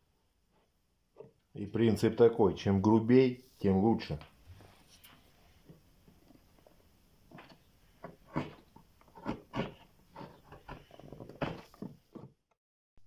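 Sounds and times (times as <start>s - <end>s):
knife scraping wood: 7.3s - 12.4s.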